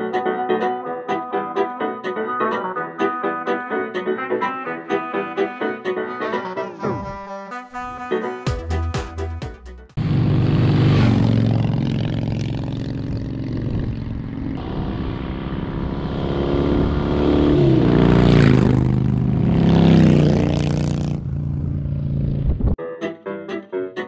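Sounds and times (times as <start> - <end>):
motorcycle engines revving: 10.0 - 22.8
motorcycle passing by: 10.0 - 22.8.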